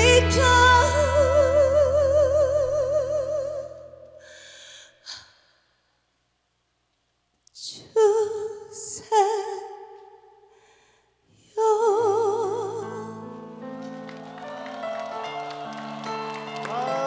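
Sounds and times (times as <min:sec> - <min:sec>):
woman singing with vibrato: 0:00.0 - 0:04.2, 0:07.6 - 0:10.2, 0:11.4 - 0:13.3
person breathing: 0:04.2 - 0:06.0, 0:10.5 - 0:11.3
sustained musical accompaniment: 0:13.1 - 0:17.0.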